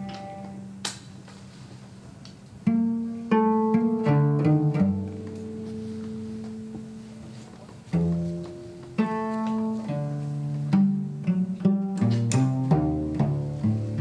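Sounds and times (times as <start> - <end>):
solo cello playing: 0.0 - 0.8, 2.6 - 14.0.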